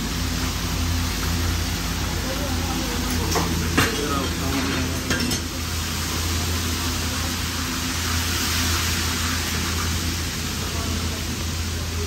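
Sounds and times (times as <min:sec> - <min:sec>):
fish sizzling in oil: 0:00.0 - 0:12.0
clink of utensils: 0:03.1 - 0:05.5.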